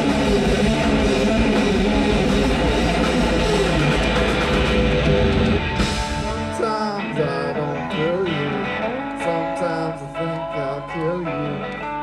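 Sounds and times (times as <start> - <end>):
heavy bass: 0.0 - 9.2
distorted electric guitar: 0.0 - 12.0
person singing: 6.2 - 12.0.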